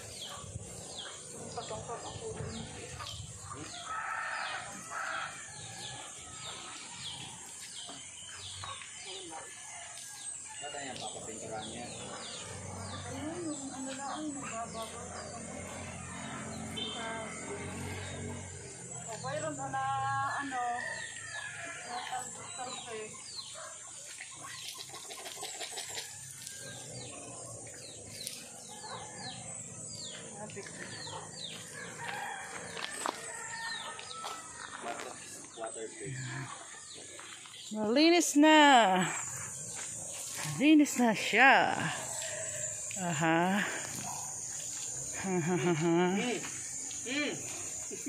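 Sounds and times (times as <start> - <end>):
birds chirping: 0.0 - 48.0
rooster crowing: 3.6 - 7.2, 15.3 - 18.8, 31.0 - 35.0.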